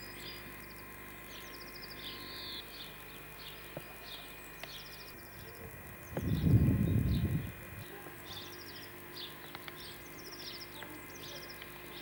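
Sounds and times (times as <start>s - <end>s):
faint steady hum: 0.0s - 12.0s
small songbirds singing: 0.0s - 12.0s
loud low rumble: 5.6s - 7.8s.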